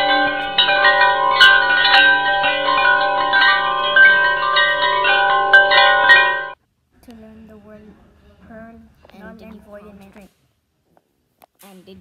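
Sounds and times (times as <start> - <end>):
bell-like chime music: 0.0 - 6.6.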